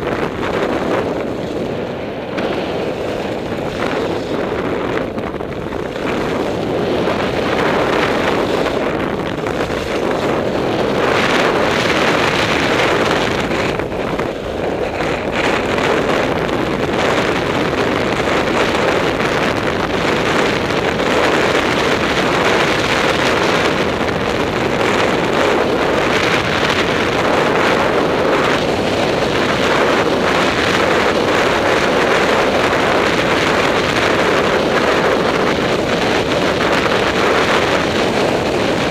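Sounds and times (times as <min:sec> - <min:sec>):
skis scraping over snow: 0:00.0 - 0:38.9
wind rushing over microphone: 0:00.0 - 0:38.9.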